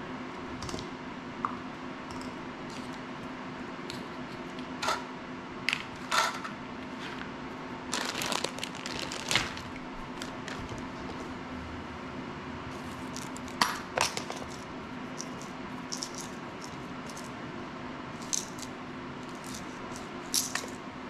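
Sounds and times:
steady low hum: 0.0s - 21.0s
plastic bag crinkling: 7.9s - 11.2s.

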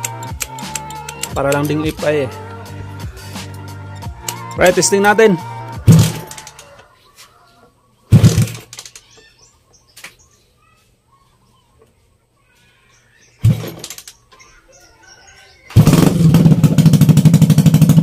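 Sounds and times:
small birds chirping: 6.6s - 16.0s.

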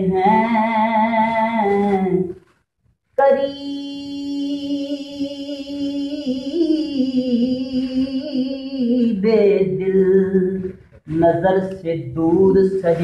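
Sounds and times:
man singing unaccompanied: 3.2s - 13.0s.

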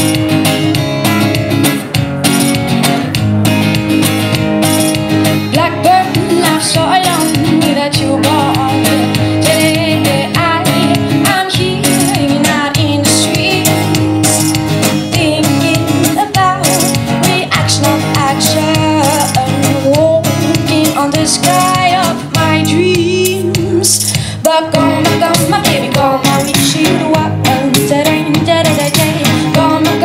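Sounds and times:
acoustic guitar strumming: 0.0s - 30.0s
woman singing: 5.5s - 14.0s, 15.0s - 30.0s.

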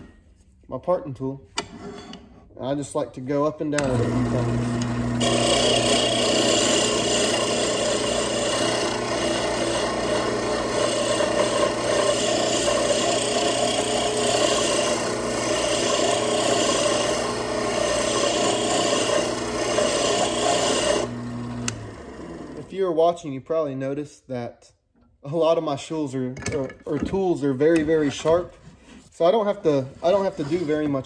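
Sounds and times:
lathe low hum: 3.8s - 22.7s
lathe tool scraping wood: 3.8s - 22.7s, 27.6s - 31.0s.

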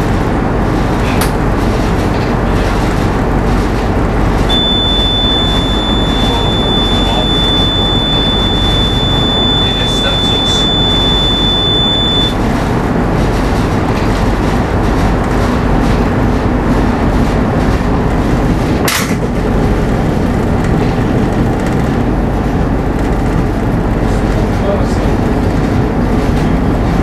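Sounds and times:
boat diesel engine rumble: 0.0s - 27.0s
high-pitched tone: 4.5s - 12.4s.

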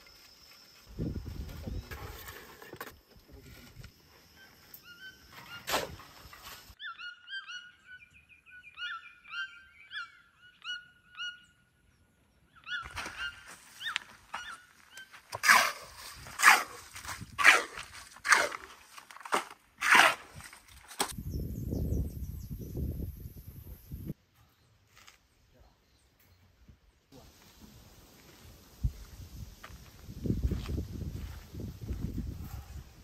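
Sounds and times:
birds chirping: 4.1s - 15.3s
harsh bird calls: 6.8s - 11.8s, 12.4s - 15.2s.

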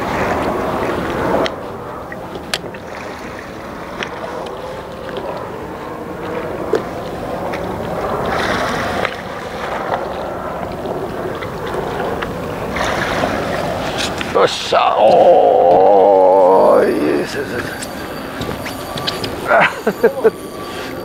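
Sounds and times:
water lapping around a boat: 0.0s - 21.0s.

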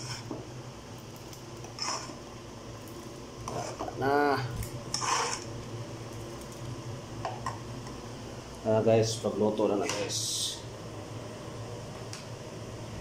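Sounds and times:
metal spoon scraping pot: 1.8s - 2.2s, 4.9s - 5.5s.

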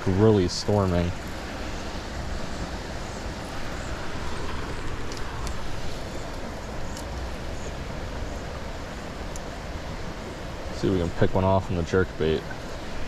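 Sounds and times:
creek water rushing: 0.0s - 13.0s.

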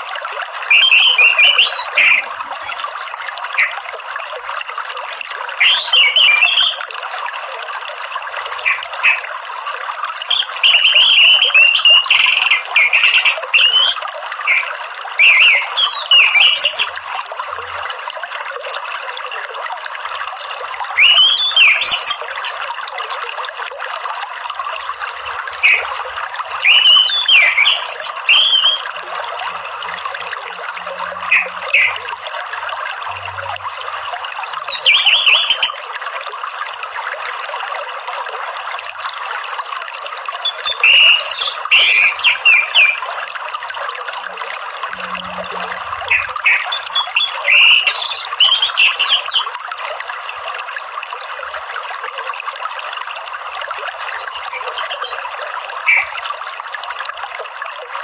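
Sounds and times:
running water: 0.0s - 58.0s.

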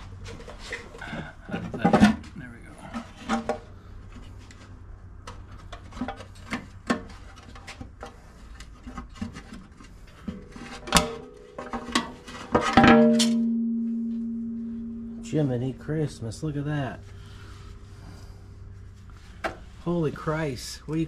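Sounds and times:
metal scraping: 5.6s - 20.5s
metal oil pan clanging: 10.8s - 15.6s.

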